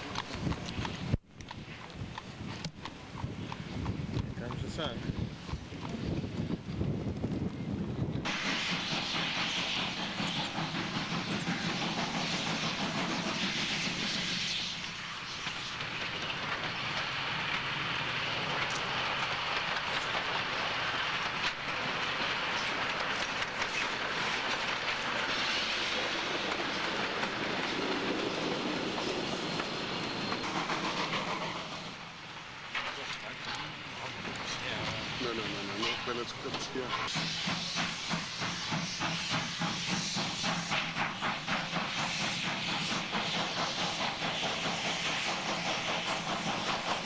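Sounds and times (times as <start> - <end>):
steam locomotive passing: 0.0 - 47.0.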